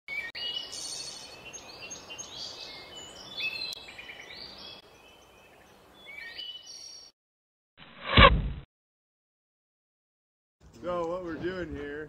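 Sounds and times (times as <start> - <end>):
songbirds chirping: 0.1 - 7.1
steady outdoor hiss: 0.5 - 6.1.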